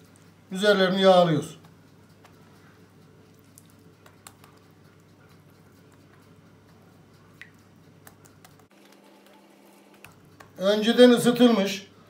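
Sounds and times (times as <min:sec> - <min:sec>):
steady low hum: 0:00.0 - 0:12.0
pastry brush dabbing and clicking: 0:01.4 - 0:10.9.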